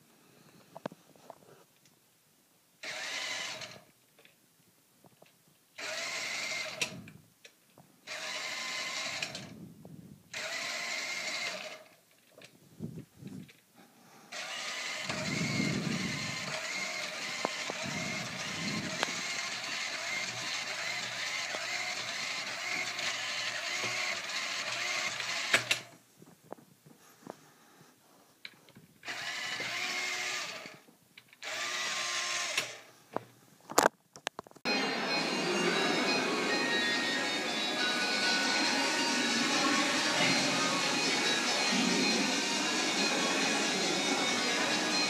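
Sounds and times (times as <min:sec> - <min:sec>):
small electric motors running: 0:02.8 - 0:03.8, 0:05.8 - 0:07.0, 0:08.1 - 0:09.5, 0:10.3 - 0:12.0, 0:14.3 - 0:25.9, 0:29.0 - 0:30.8, 0:31.4 - 0:32.9, 0:34.7 - 0:45.0.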